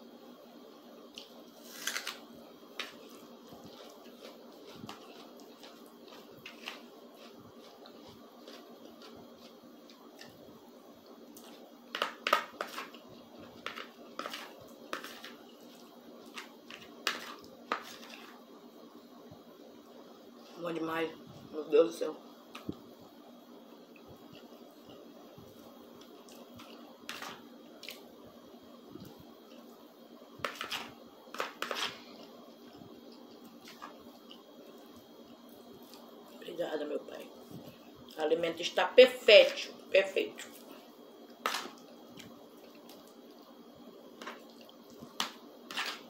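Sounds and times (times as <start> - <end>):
chewing: 2.8 - 10.4, 31.9 - 36.4, 44.2 - 45.1
spoon scraping plastic plate: 11.9 - 12.9, 13.6 - 15.4, 27.1 - 27.4, 30.4 - 32.1, 45.2 - 46.0
metal spoon scraping plastic plate: 30.5 - 32.0, 45.7 - 46.0.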